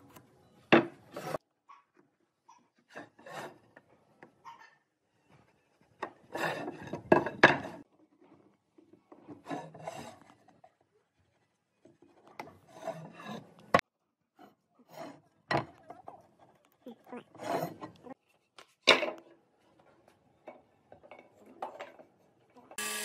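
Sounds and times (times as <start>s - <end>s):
wood scraped by hand: 1.0s - 1.4s, 5.4s - 7.9s.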